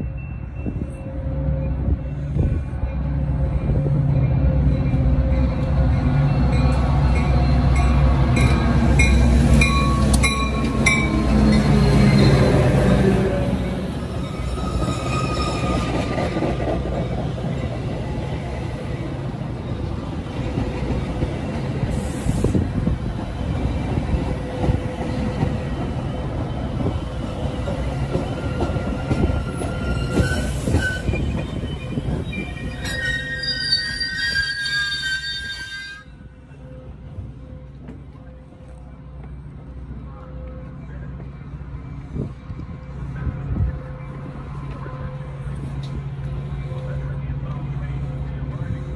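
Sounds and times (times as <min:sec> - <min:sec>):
train cars rumbling: 0:00.0 - 0:48.9
high metal squeals: 0:29.5 - 0:36.2.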